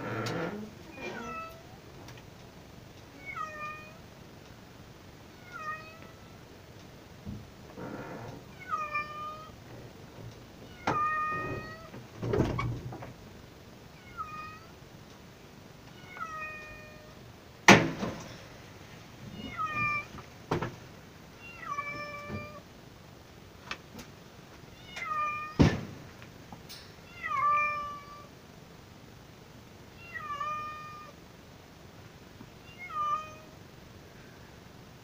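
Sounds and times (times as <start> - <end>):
cat meowing: 0.9 - 1.8, 3.1 - 4.0, 5.4 - 6.4, 8.5 - 9.6, 10.6 - 11.9, 14.0 - 14.7, 15.9 - 17.2, 19.3 - 20.1, 21.4 - 22.6, 24.7 - 25.7, 27.1 - 28.3, 30.0 - 31.2, 32.6 - 33.6.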